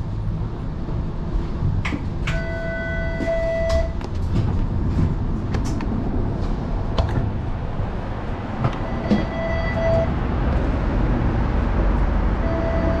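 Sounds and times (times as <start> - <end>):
streetcar clanks: 0.0 - 13.0
streetcar rumbling on rails: 0.0 - 13.0
brief steady tones: 8.8 - 10.1.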